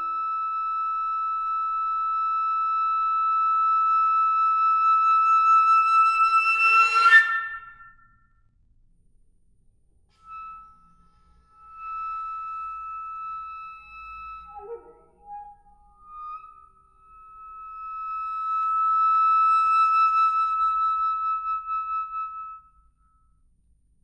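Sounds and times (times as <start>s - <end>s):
flute playing high note: 10.2s - 22.6s.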